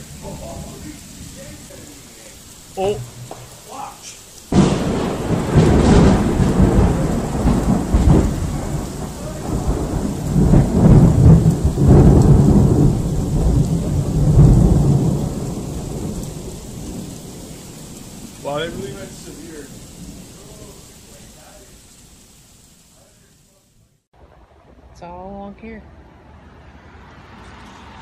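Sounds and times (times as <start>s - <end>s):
rolling thunder rumble: 0.0s - 23.1s
steady rain: 0.0s - 28.0s.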